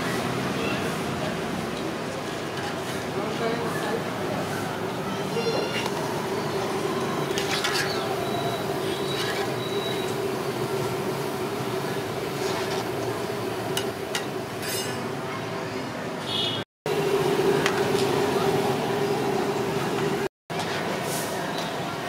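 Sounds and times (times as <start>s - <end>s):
oil sizzling and bubbling: 5.7s - 15.2s, 16.9s - 21.2s
metal skimmer scraping pan: 7.3s - 10.1s.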